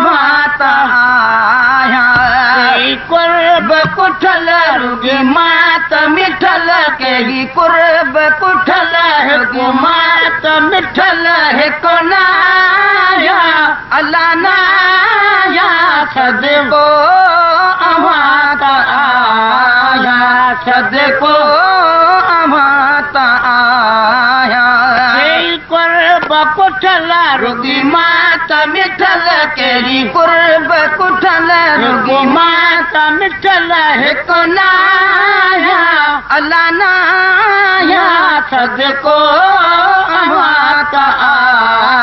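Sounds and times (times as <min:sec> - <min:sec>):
man singing devotional song: 0:00.0 - 0:42.0.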